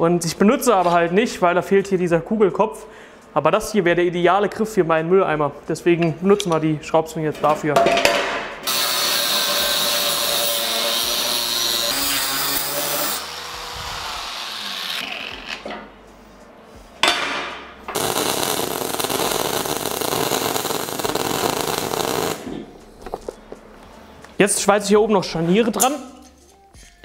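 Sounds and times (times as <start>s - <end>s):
angle grinder cutting steel: 8.7s - 15.6s
arc welding crackling: 8.7s - 15.6s, 17.9s - 22.7s.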